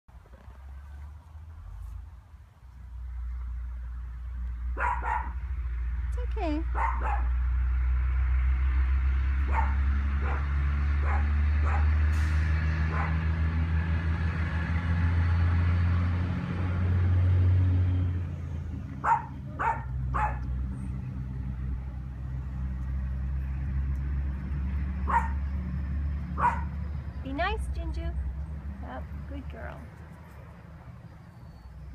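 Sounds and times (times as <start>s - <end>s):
low engine-like hum: 0.1s - 31.9s
puppies yipping and barking: 25.1s - 25.4s, 26.4s - 26.7s.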